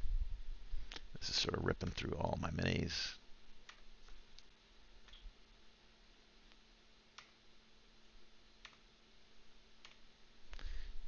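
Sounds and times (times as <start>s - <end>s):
faint computer mouse clicks: 8.6s - 8.8s.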